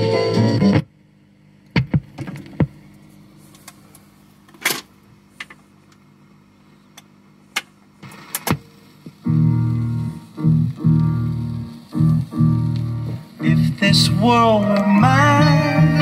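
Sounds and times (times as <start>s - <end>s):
faint steady hum: 0.0s - 16.0s
record changer clicks and clunks: 1.6s - 6.1s, 7.0s - 13.6s.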